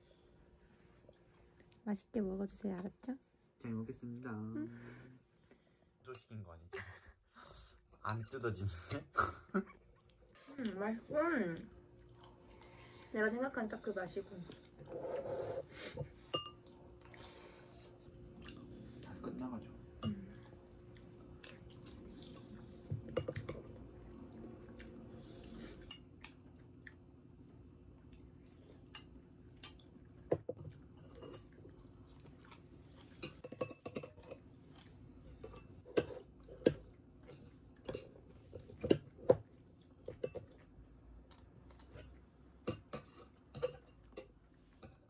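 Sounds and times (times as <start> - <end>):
chewing: 11.6 - 13.0, 16.5 - 19.2, 20.3 - 28.9, 30.6 - 33.5, 34.2 - 42.3
utensils clinking against a bowl: 16.3 - 16.7, 28.9 - 32.3, 33.2 - 34.5, 35.3 - 39.4, 41.7 - 45.0.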